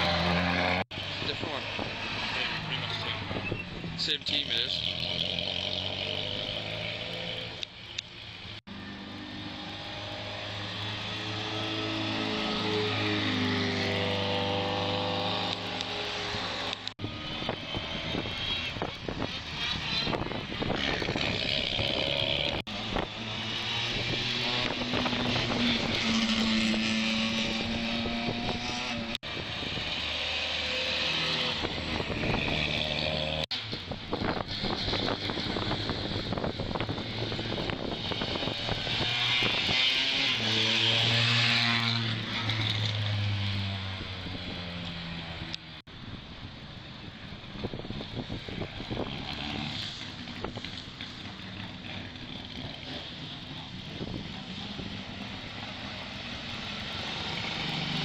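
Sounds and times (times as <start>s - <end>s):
rally car engines: 0.0s - 58.0s
roadside traffic: 0.0s - 58.0s
wind on microphone: 14.2s - 42.3s, 43.2s - 55.6s.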